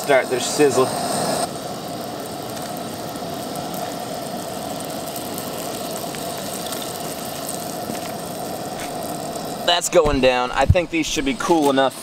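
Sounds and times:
butter sizzling in pan: 0:00.0 - 0:12.0
camp stove flame hissing: 0:00.0 - 0:12.0.

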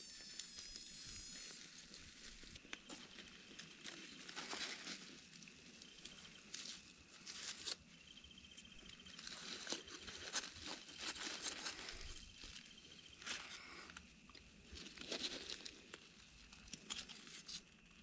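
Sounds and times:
aluminium foil crinkling: 0:00.1 - 0:07.9, 0:08.8 - 0:18.0.

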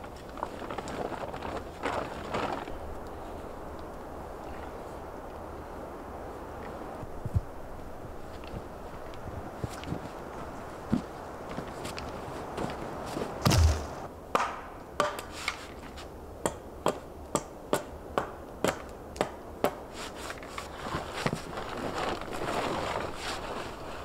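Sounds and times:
campfire crackling: 0:00.0 - 0:14.1
heavy wood thump: 0:13.4 - 0:14.1
sharp wood knocks: 0:13.4 - 0:15.2.

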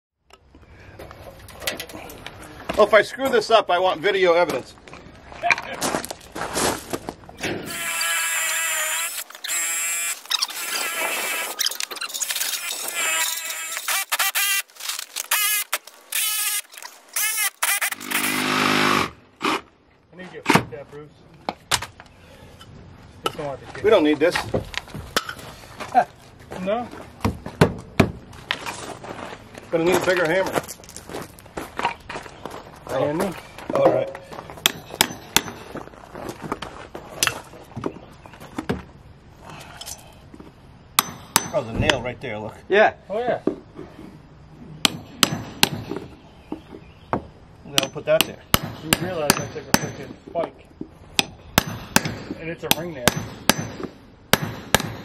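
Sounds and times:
cordless drill squealing: 0:07.6 - 0:19.1.

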